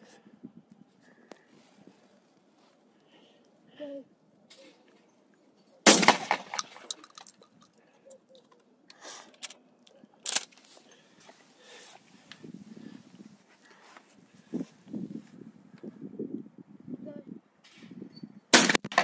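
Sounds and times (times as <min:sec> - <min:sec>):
quieter sharp bang: 0:05.9 - 0:06.7
shotgun firing: 0:05.9 - 0:06.8, 0:18.5 - 0:19.0
clicks of gun handling: 0:06.0 - 0:10.9.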